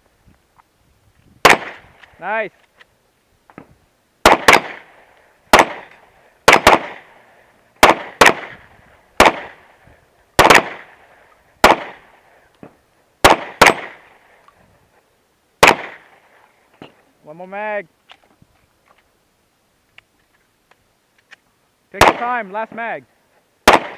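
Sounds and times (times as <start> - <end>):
pistol shots with echo: 1.4 - 1.8, 4.2 - 4.9, 5.5 - 7.1, 7.8 - 8.6, 9.2 - 9.6, 10.4 - 11.0, 11.6 - 12.1, 13.2 - 14.0, 15.6 - 16.1, 22.0 - 22.4, 23.6 - 23.9.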